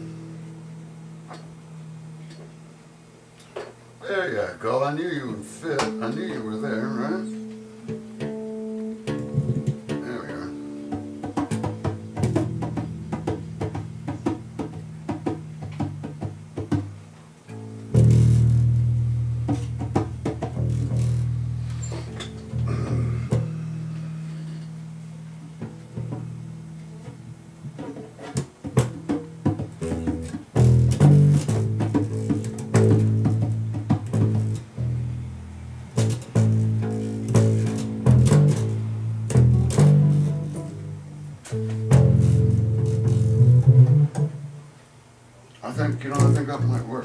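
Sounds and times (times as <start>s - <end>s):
plucked strings: 0.0s - 2.7s, 5.0s - 45.1s, 45.7s - 47.0s
low bass notes: 0.0s - 3.1s, 3.9s - 47.0s
light percussive taps: 7.4s - 10.1s, 10.8s - 18.3s, 19.4s - 21.3s, 25.4s - 26.4s, 27.0s - 34.8s.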